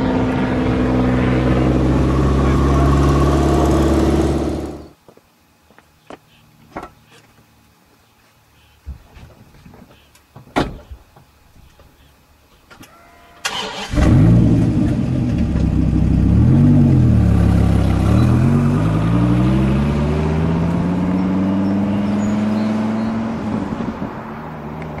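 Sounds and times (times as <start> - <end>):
car accelerating away: 0.0 - 4.9, 13.4 - 25.0
car engine starting and revving: 0.0 - 4.9, 13.4 - 25.0.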